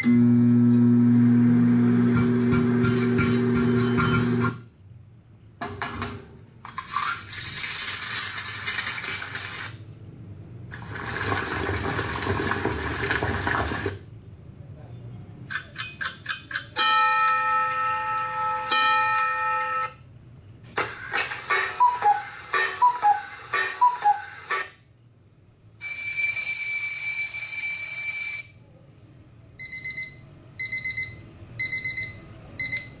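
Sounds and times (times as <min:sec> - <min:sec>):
cuckoo clock calling: 0:21.5 - 0:24.6
digital alarm clock beeping: 0:21.7 - 0:24.4, 0:29.6 - 0:33.0
ringing alarm: 0:25.8 - 0:28.7, 0:29.6 - 0:33.0.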